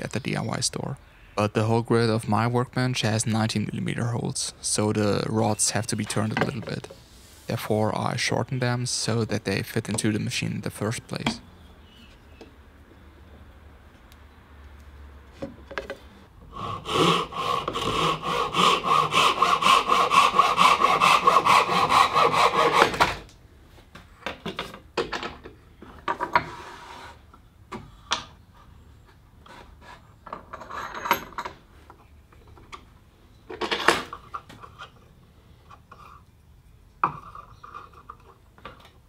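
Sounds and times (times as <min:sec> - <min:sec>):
hand saw cutting wood: 0:16.5 - 0:23.3.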